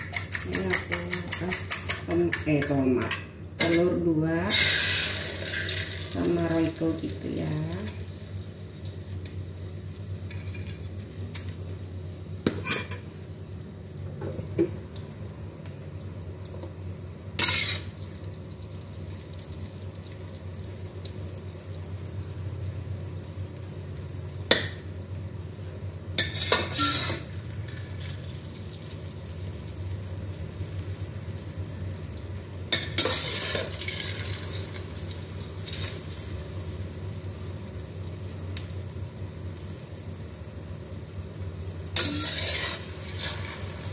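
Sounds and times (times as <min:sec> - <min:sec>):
spatula scraping and knocking wok: 0:00.0 - 0:03.8, 0:17.4 - 0:17.9, 0:26.2 - 0:27.3, 0:32.7 - 0:34.1, 0:42.0 - 0:43.9
eggs sizzling in hot oil: 0:00.0 - 0:43.9.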